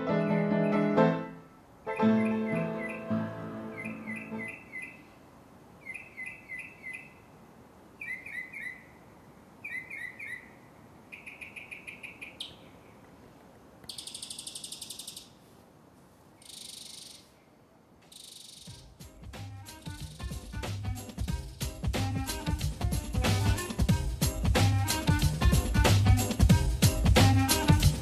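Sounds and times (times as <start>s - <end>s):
fast bird trill: 1.9s - 5.1s, 5.8s - 7.3s, 8.0s - 9.0s, 9.6s - 12.7s, 13.9s - 15.4s, 16.4s - 17.4s, 18.1s - 19.0s
bird chirps: 1.9s - 5.2s, 5.8s - 7.4s, 8.0s - 9.0s, 9.6s - 13.1s, 13.8s - 15.4s, 16.4s - 18.9s.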